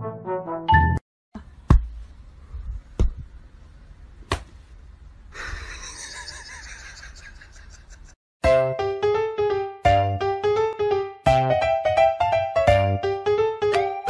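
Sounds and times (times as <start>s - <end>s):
music: 0.0s - 1.0s, 8.4s - 14.0s
hand slapping straw mat floor: 4.2s - 4.6s.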